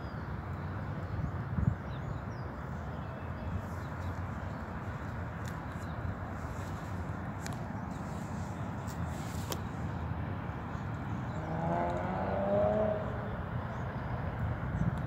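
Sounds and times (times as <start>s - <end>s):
city traffic rumble: 0.0s - 15.0s
vehicle engine revving: 11.3s - 13.3s.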